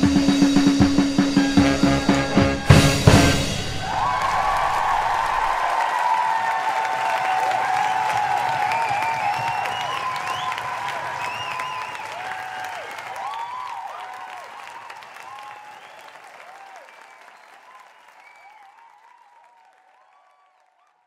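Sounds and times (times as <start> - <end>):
crowd whooping: 1.0 - 21.0
crowd applauding: 1.4 - 21.0.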